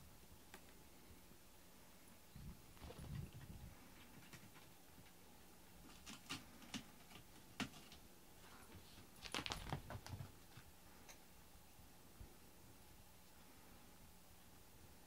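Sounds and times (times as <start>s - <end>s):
cats padding on foam mats: 2.7s - 5.2s, 5.8s - 10.7s.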